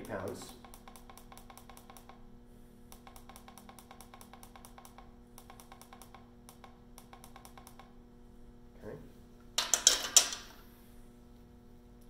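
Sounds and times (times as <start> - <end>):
faint steady hum: 0.0 - 12.0.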